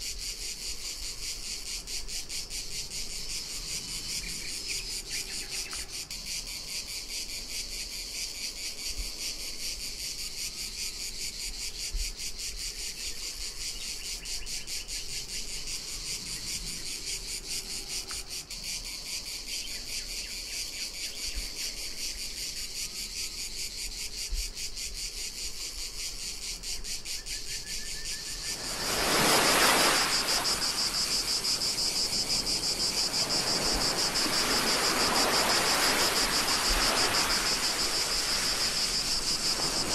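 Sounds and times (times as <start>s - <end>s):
cicadas buzzing: 0.0s - 39.9s
sea water rushing: 28.4s - 39.9s.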